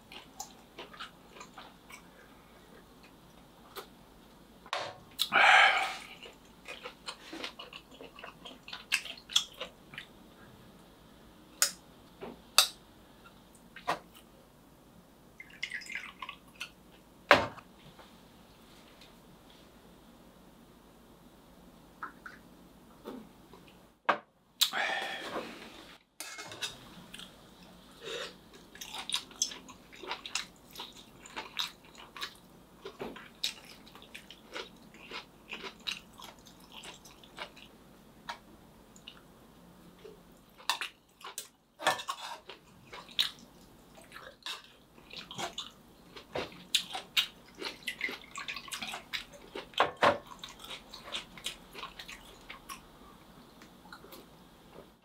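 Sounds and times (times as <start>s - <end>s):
person chewing: 0.0s - 3.9s, 5.2s - 10.1s, 28.0s - 38.4s, 40.0s - 52.9s.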